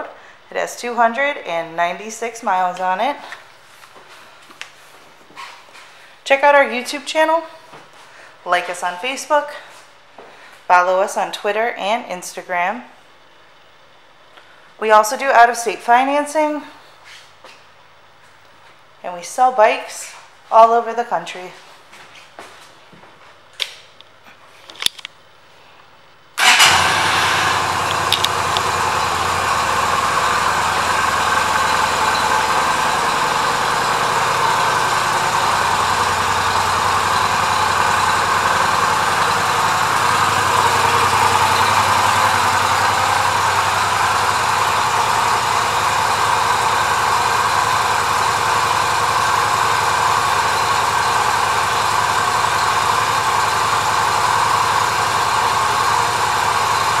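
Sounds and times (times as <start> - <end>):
motorcycle engine idling: 26.4 - 57.0.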